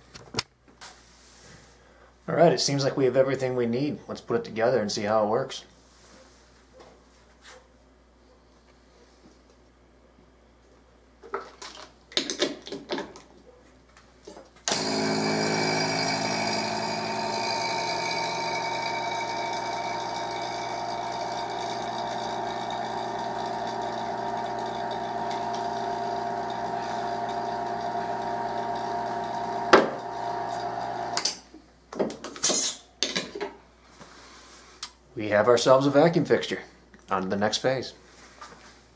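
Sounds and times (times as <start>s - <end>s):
vacuum pump humming and whining: 14.7s - 31.3s.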